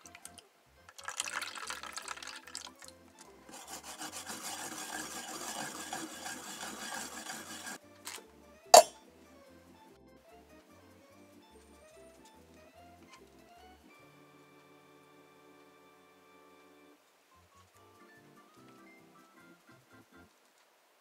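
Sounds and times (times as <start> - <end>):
light background music: 0.0 - 20.4
ginger grated on metal grater: 3.5 - 7.8
sharp knock: 8.8 - 9.0.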